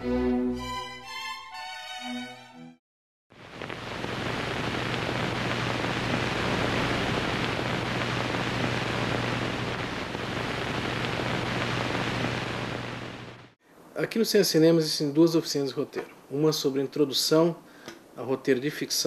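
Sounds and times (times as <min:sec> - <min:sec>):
steady static hiss: 0:03.3 - 0:19.0
low steady hum: 0:03.4 - 0:13.9.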